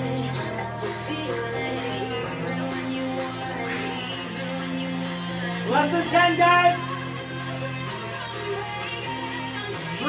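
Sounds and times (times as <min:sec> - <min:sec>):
background music with held tones: 0:00.0 - 0:10.0.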